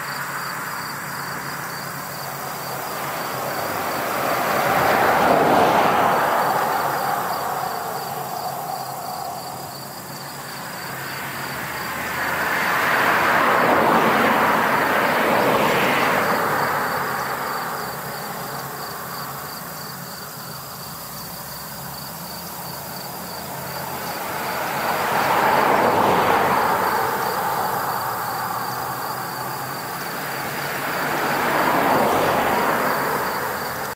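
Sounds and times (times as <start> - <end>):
rushing noise: 2.3 - 18.8
insect pulsing chirp: 6.3 - 11.2.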